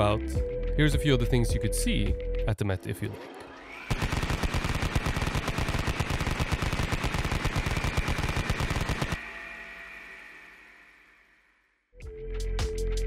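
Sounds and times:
steady high tone: 0:02.8 - 0:12.0
rapid sharp clicks with thumps: 0:03.9 - 0:09.2.

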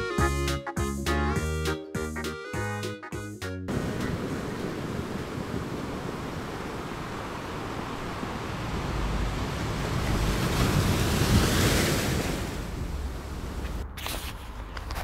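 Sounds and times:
surf breaking on shore: 0:03.7 - 0:13.8
wind blowing: 0:03.7 - 0:15.0.

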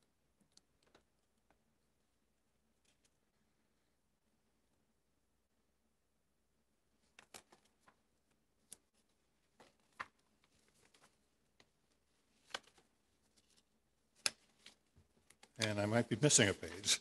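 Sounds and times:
paper pages rustling: 0:07.0 - 0:17.0.

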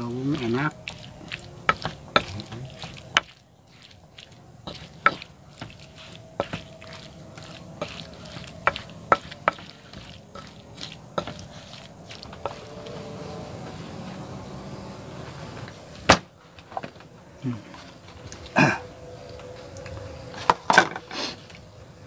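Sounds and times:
wet squishing: 0:00.0 - 0:14.3
pestle knocking in mortar: 0:01.6 - 0:03.4, 0:04.7 - 0:05.8, 0:08.6 - 0:10.5.

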